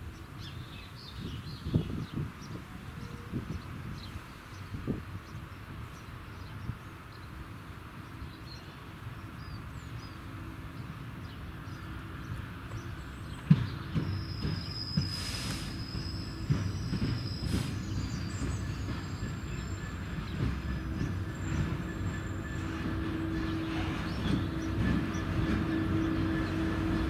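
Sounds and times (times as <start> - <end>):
diesel locomotive engine running: 1.8 - 27.0
high wheel squeal: 14.2 - 27.0.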